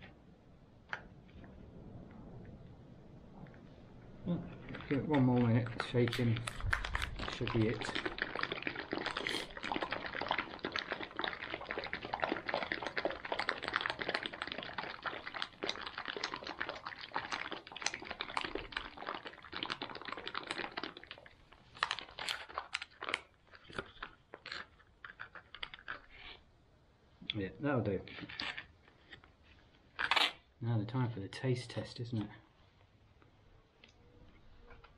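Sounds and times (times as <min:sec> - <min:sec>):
plastic pouch crinkling and rattling: 0:04.5 - 0:26.4, 0:28.0 - 0:30.4.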